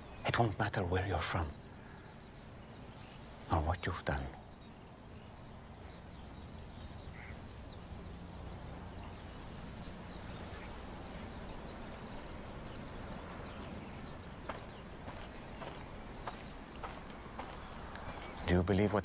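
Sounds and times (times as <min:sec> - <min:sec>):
small birds chirping: 0:00.0 - 0:19.0
steady low hum: 0:00.0 - 0:19.0.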